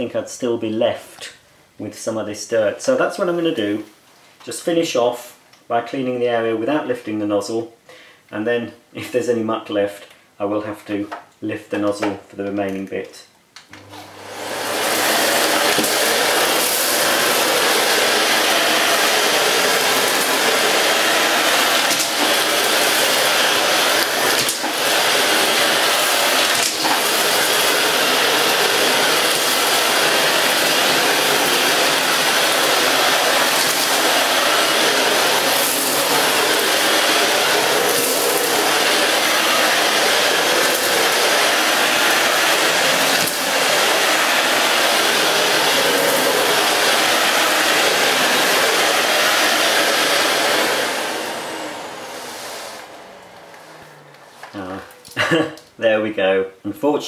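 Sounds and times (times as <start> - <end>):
vacuum cleaner running: 13.7 - 55.3.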